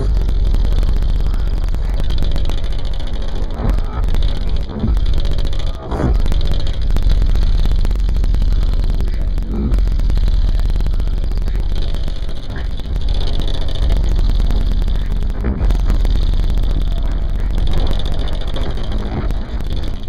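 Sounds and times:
loud bass-heavy car music: 0:00.0 - 0:20.0.

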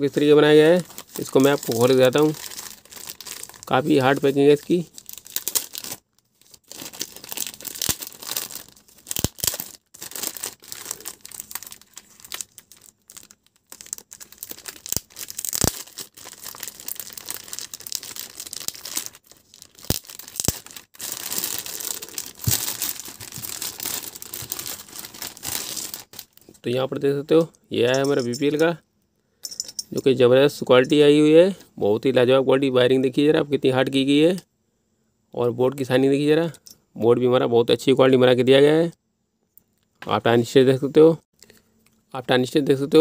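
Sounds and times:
plastic wrapping crinkling and tearing: 0:00.7 - 0:26.6.

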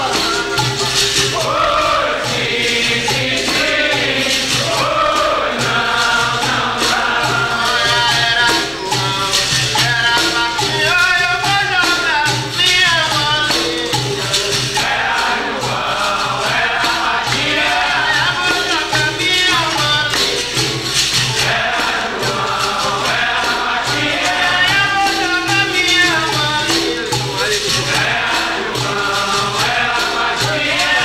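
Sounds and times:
group singing together: 0:00.0 - 0:31.0
shaken rattle: 0:00.0 - 0:31.0
tambourine: 0:00.0 - 0:31.0.

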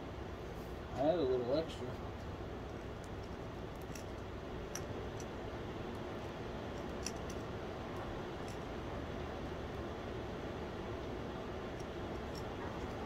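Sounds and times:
tongs clicking on crucible: 0:06.7 - 0:08.7.

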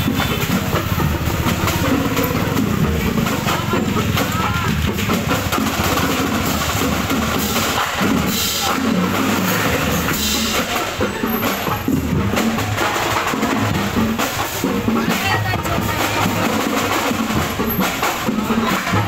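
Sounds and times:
bass drum: 0:00.0 - 0:19.0
marching band drums: 0:00.0 - 0:19.0.

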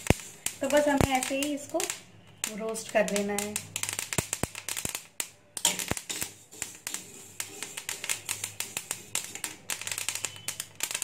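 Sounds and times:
seeds popping in hot pan: 0:00.0 - 0:11.0.

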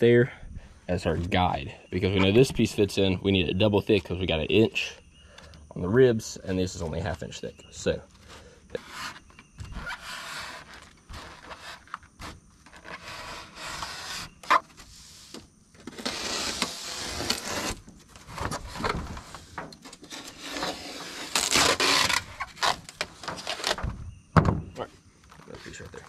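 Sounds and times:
knife scraping through foam board: 0:08.2 - 0:23.8.

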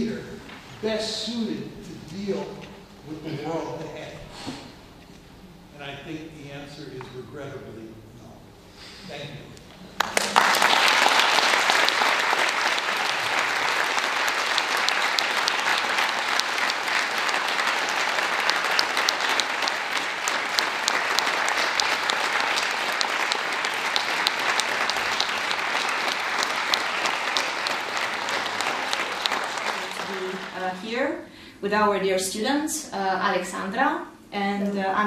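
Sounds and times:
audience applauding: 0:10.0 - 0:30.9.

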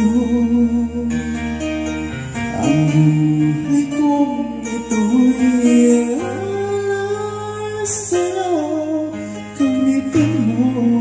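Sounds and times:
karaoke backing track with guitar: 0:00.0 - 0:11.0
person singing long held notes: 0:02.5 - 0:11.0.

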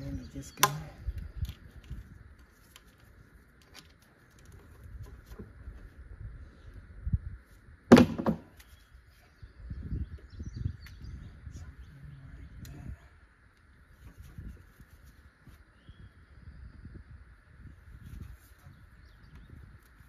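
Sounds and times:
loud thunk: 0:07.9 - 0:08.5.

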